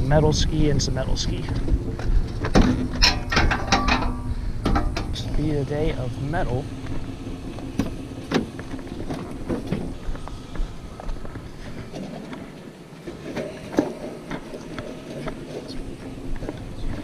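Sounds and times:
metal fire pit rattling and clanking: 1.2 - 10.2.

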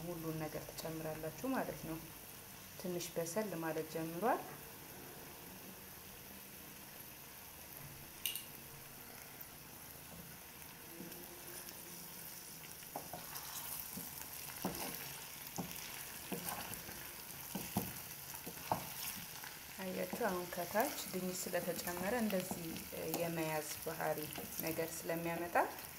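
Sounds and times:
vegetables sizzling in oil: 0.0 - 25.9
spoon scraping pot: 12.9 - 19.3.

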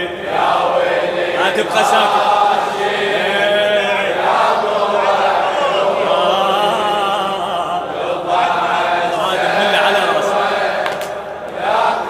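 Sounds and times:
men chanting in unison: 0.0 - 12.0.

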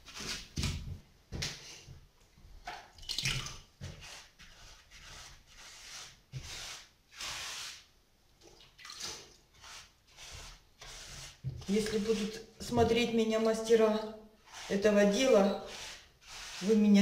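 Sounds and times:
brush smearing wet mortar: 3.8 - 7.9, 9.0 - 17.0.

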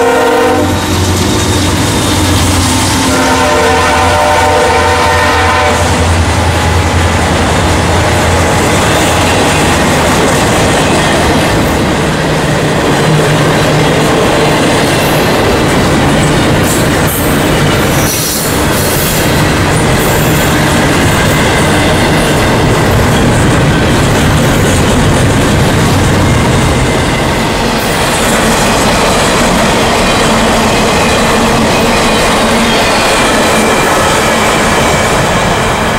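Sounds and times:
freight train rumbling past: 0.0 - 35.9.

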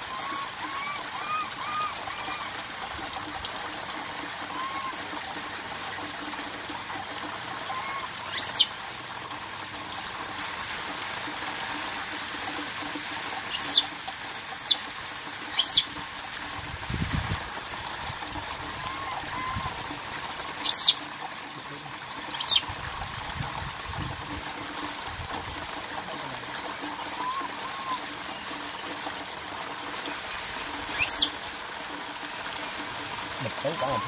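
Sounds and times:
water trickling: 0.0 - 34.0
baby monkey cooing: 0.1 - 2.5, 7.7 - 8.6, 13.6 - 13.9, 15.6 - 15.8, 20.6 - 21.0, 22.3 - 22.6, 27.2 - 28.0, 30.9 - 31.3
high-pitched monkey squeaks: 0.1 - 2.5, 7.7 - 8.7, 13.5 - 13.9, 14.5 - 14.8, 15.5 - 15.9, 18.8 - 19.7, 20.6 - 21.0, 22.3 - 22.7, 27.2 - 28.0, 30.9 - 31.3.

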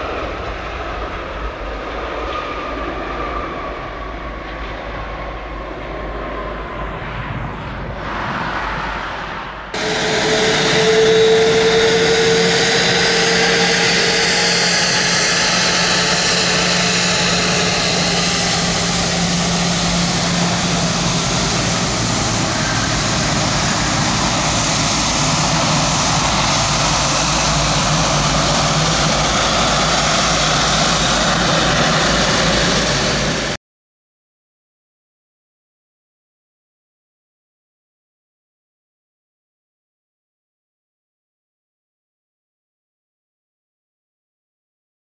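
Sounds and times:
high engine whine: 0.0 - 33.6
jet engines running: 0.0 - 33.6.

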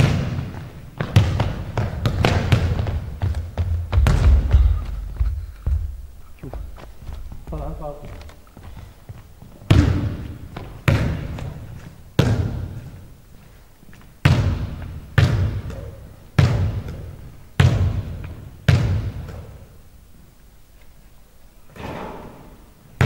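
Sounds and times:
basketball bouncing on wooden floor: 0.0 - 13.0, 14.2 - 19.6.

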